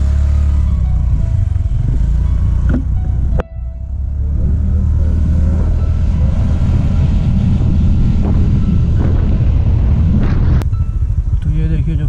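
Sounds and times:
scooter engine running: 0.0s - 12.0s
wind noise on microphone: 4.3s - 12.0s.

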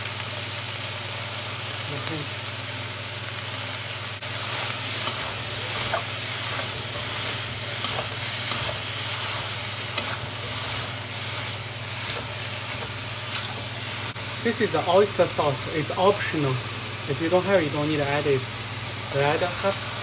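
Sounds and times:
cabbage sizzling in a wok: 0.0s - 20.0s
metal spatula scraping a pan: 4.3s - 13.7s.

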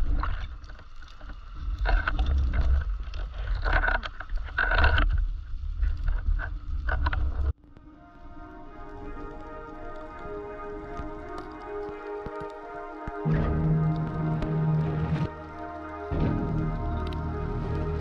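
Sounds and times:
underwater low rumble: 0.0s - 18.0s
background music: 7.6s - 18.0s
rushing water: 8.2s - 18.0s.

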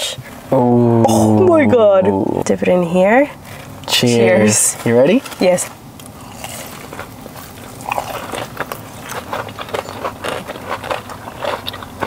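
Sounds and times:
mouth sounds: 0.5s - 1.8s
people crunching fried chicken: 6.0s - 12.0s.

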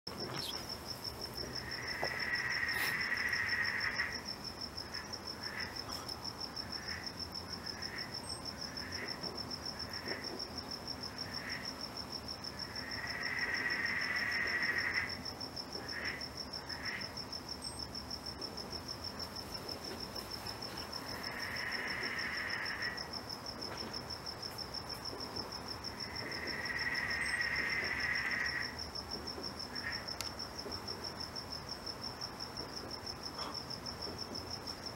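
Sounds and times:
cricket trilling: 0.1s - 34.9s
lower buzzing insect call: 0.1s - 34.9s
short insect chirps: 0.2s - 0.8s.

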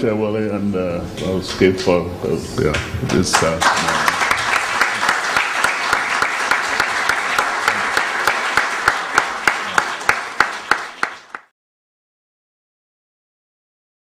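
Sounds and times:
audience applauding: 3.2s - 11.5s.

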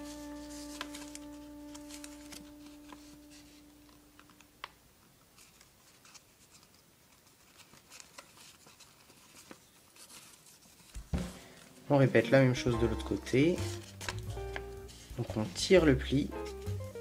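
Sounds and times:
paper crinkling while folded: 0.0s - 11.1s, 12.6s - 17.0s
small paper clicks: 0.5s - 11.0s
held music note: 11.2s - 16.1s.

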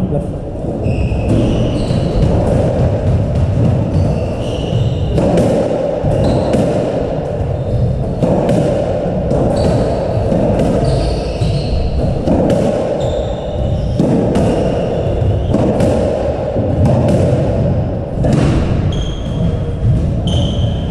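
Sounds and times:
shoes squeaking on wooden floor: 0.8s - 3.0s, 3.6s - 6.7s, 9.4s - 12.2s, 12.9s - 15.6s, 18.9s - 20.9s
squash ball cracking off rackets: 1.3s - 13.0s, 14.0s - 19.2s.

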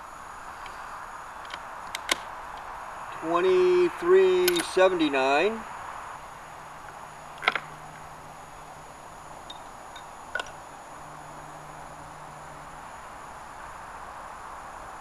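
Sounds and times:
rifle bolt metallic clicks: 1.4s - 2.3s, 4.4s - 4.8s.

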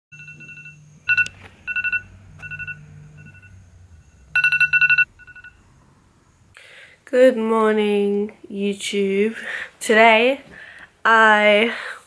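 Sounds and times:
phone alarm beeping: 0.2s - 5.7s.

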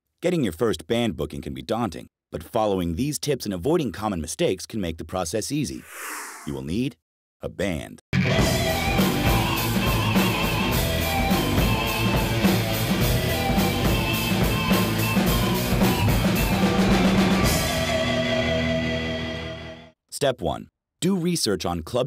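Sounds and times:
rock band playing: 8.2s - 19.6s
drums beating steadily: 8.4s - 18.0s.

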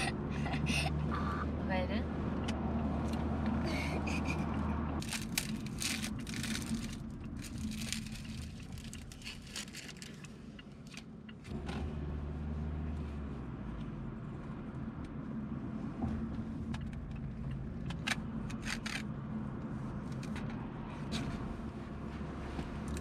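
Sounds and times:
car road noise drone: 0.0s - 23.0s
gift wrapping crinkling and tearing: 5.0s - 10.3s.

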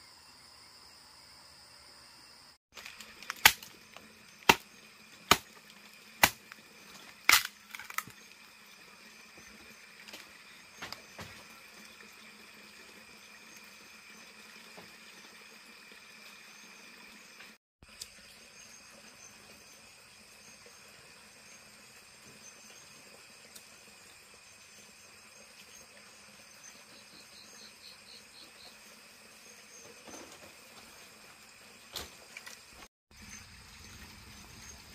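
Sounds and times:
crickets chirping: 0.0s - 34.9s
machete chopping wood: 2.8s - 3.8s, 4.4s - 6.6s, 7.2s - 8.2s.

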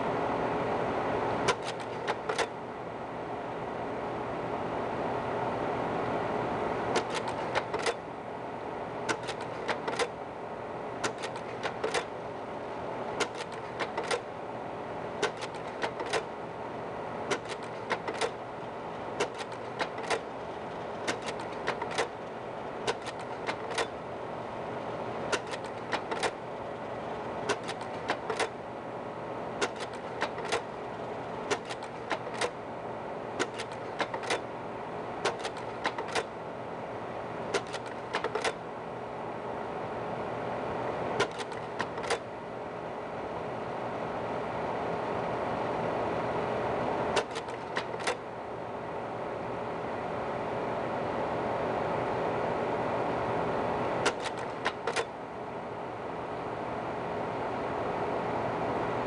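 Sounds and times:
projector fan humming: 0.0s - 59.0s
sharp mechanical clicks: 1.5s - 2.6s, 6.9s - 8.0s, 9.1s - 10.2s, 11.0s - 12.2s, 13.2s - 14.3s, 15.2s - 16.4s, 17.3s - 24.0s, 25.3s - 28.6s, 29.6s - 32.6s, 33.4s - 34.5s, 35.2s - 36.4s, 37.5s - 38.6s, 41.2s - 42.3s, 47.2s - 48.2s, 54.0s - 55.2s.

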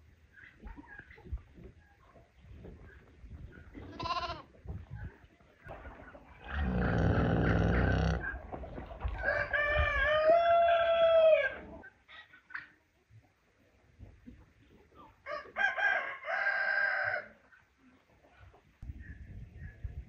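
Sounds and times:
short bleat: 3.9s - 4.4s, 6.6s - 8.2s
low rough animal call: 6.4s - 8.4s
rooster crowing: 9.2s - 11.6s, 15.3s - 17.3s.

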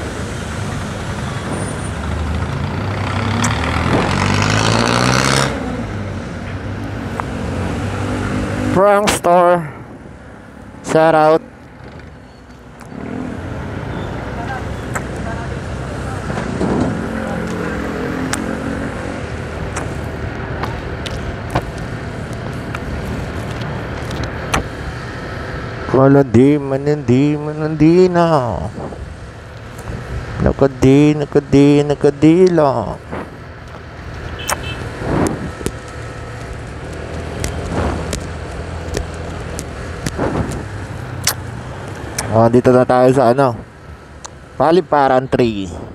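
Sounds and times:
road and wind noise: 0.0s - 45.9s
wind noise on microphone: 28.7s - 29.2s, 34.2s - 35.8s, 36.5s - 41.3s.

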